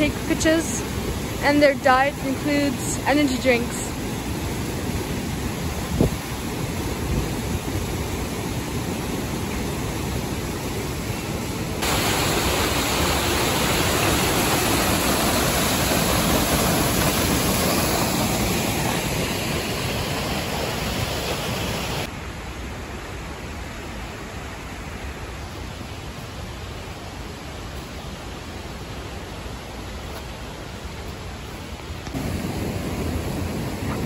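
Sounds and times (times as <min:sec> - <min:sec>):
waterfall rushing over rocks: 0:00.0 - 0:34.0.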